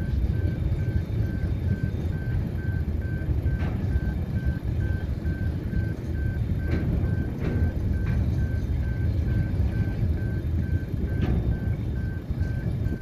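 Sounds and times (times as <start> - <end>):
freight wagons rumbling past: 0.0 - 13.0
wheel clicks over rail joints: 3.1 - 13.0.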